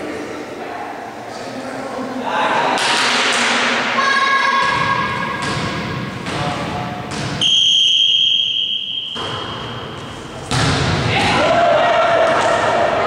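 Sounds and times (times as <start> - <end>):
players in a sports hall: 0.0 - 13.0
referee's whistle blast: 7.4 - 9.8
ball thumps: 10.5 - 11.4.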